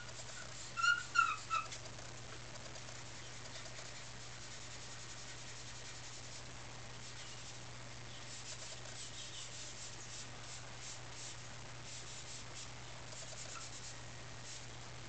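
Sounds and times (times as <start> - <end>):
pencil scratching on paper: 11.9 - 14.6.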